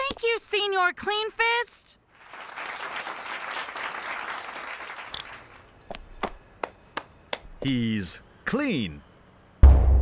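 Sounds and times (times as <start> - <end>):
cartoon crowd applauding and cheering: 2.2 - 5.2.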